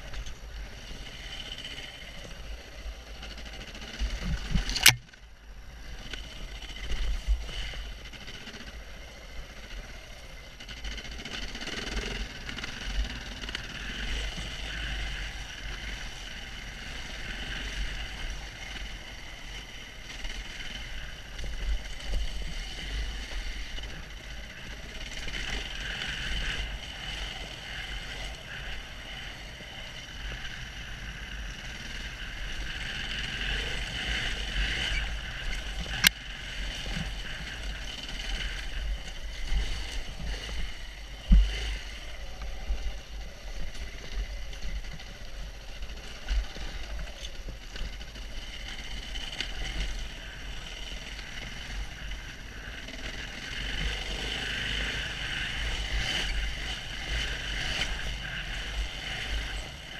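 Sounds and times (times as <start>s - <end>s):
motorcycle engine running: 0.0s - 59.9s
wind rumbling on microphone: 4.0s - 5.0s
sharp click: 4.6s - 5.2s.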